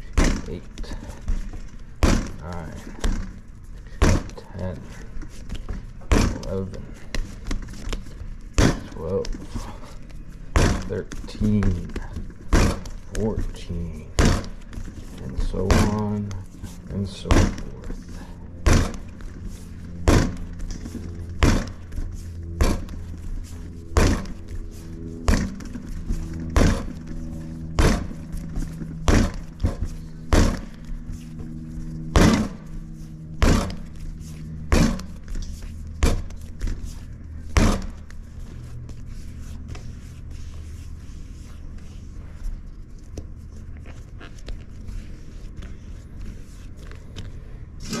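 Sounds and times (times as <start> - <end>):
steady low hum: 0.0 - 48.0
dough slapped by hand: 21.4 - 21.8, 24.0 - 24.4, 26.5 - 26.9, 27.8 - 28.1, 29.0 - 30.7, 32.1 - 32.6, 33.4 - 33.8.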